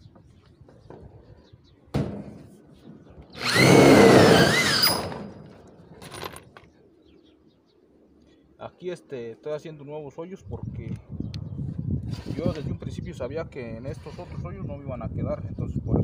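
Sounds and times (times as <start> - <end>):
electric drill whining through metal: 3.4 - 5.5.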